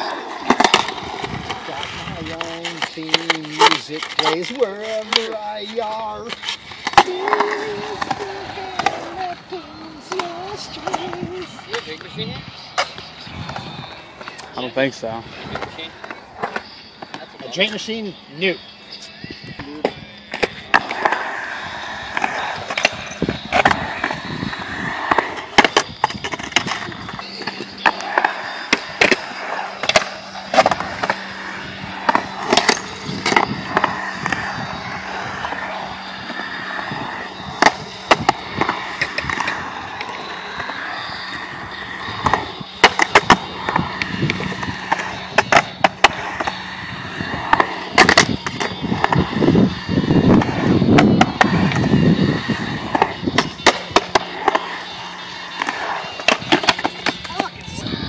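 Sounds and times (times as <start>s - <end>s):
skateboard clacks: 0.0s - 18.0s, 18.6s - 57.8s
skateboard wheels on concrete: 0.0s - 58.0s.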